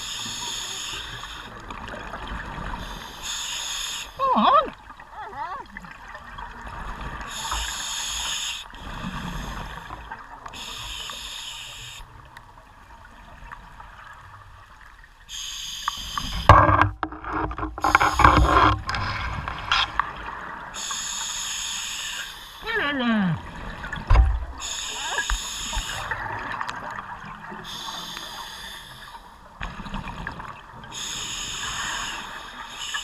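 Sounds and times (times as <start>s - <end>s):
regulator breathing hiss: 0.0s - 1.6s, 2.8s - 4.2s, 7.3s - 9.9s, 10.6s - 12.1s, 15.3s - 16.5s, 20.8s - 22.6s, 24.6s - 26.2s, 27.6s - 29.2s, 31.0s - 33.0s.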